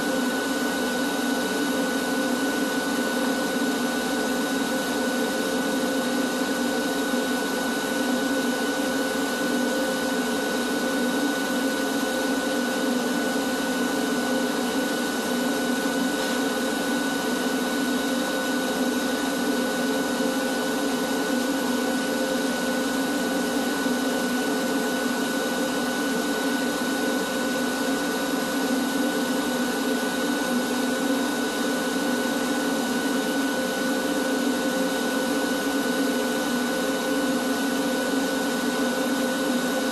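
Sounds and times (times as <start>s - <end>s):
shop vacuum running: 0.0s - 39.9s.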